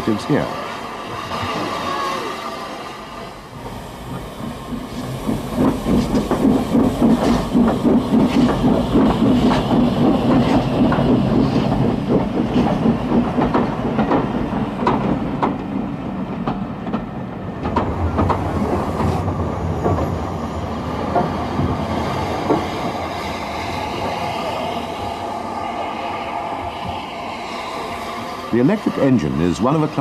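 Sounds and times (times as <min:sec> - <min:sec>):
steam locomotive wheels clanking: 0:03.2 - 0:30.0.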